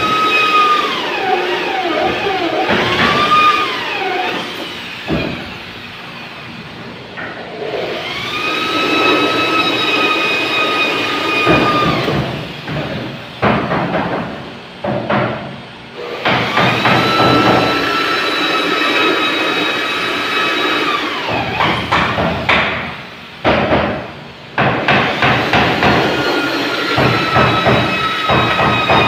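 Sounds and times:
electric drill boring through metal: 0.0s - 5.7s, 7.6s - 12.7s, 16.0s - 21.9s, 24.9s - 29.0s.

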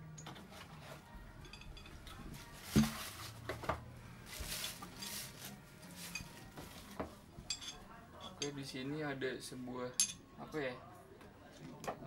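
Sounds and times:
parts clattering: 0.2s - 8.5s
plastic wrapping rustling: 2.0s - 7.3s.

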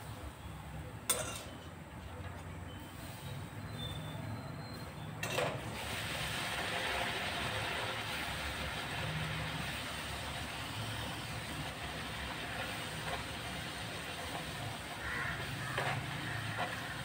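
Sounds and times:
oil sizzling and bubbling: 4.7s - 17.0s.

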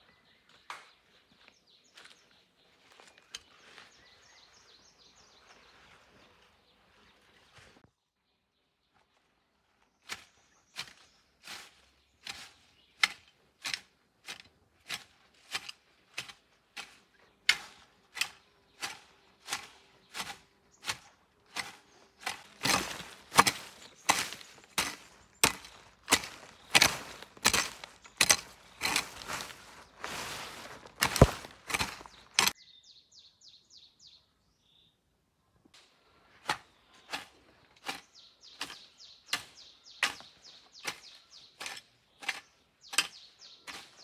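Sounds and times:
hoe chopping into soil: 10.1s - 32.6s, 36.4s - 44.0s.

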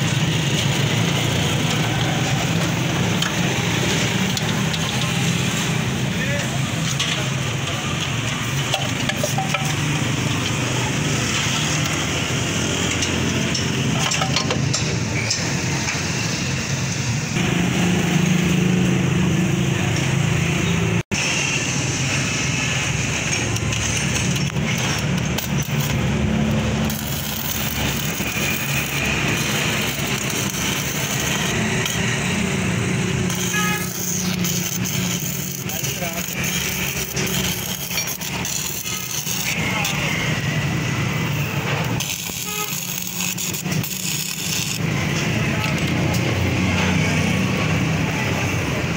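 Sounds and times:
mechanical hum: 14.6s - 48.9s.

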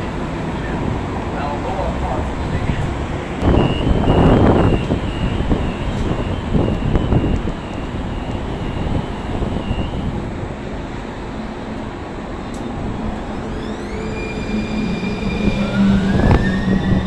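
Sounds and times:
loud rush of noise: 0.0s - 17.0s
door warning beeper: 3.4s - 10.2s.

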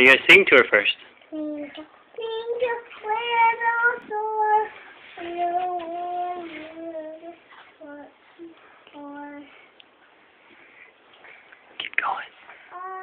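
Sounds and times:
girl singing slow tune: 1.2s - 10.0s, 12.5s - 13.0s.

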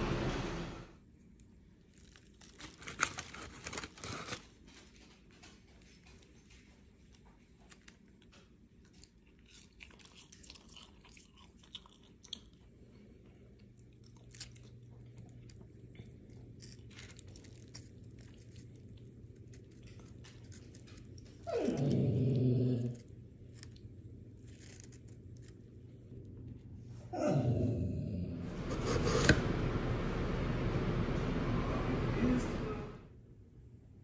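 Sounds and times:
loud low humming: 0.0s - 1.0s, 27.0s - 33.2s
steady low hum: 0.0s - 1.8s, 12.5s - 34.0s
chewing and crunching fries: 1.2s - 26.6s
paper wrapper rustling: 1.9s - 5.2s, 23.5s - 25.7s.

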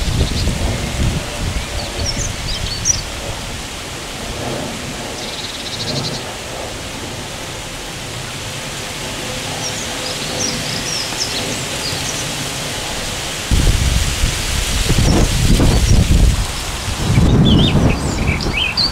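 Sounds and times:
small birds chirping: 0.0s - 3.2s, 9.6s - 12.6s, 14.9s - 18.9s
wind rumble on microphone: 0.0s - 18.9s
wind rustling leaves: 0.0s - 18.9s
buzzy bird trill: 17.1s - 18.9s.

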